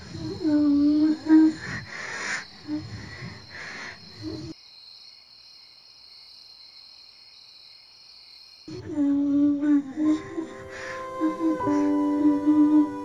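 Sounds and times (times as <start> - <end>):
crickets chirring: 0.0 - 9.2
rough breathy sound: 1.5 - 4.6
music with held low note: 8.8 - 13.0.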